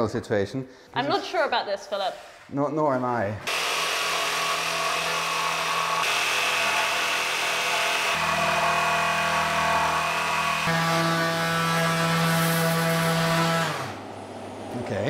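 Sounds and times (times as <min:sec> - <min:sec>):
jigsaw motor whine: 0:03.5 - 0:14.0
orbital sander running: 0:03.5 - 0:14.5.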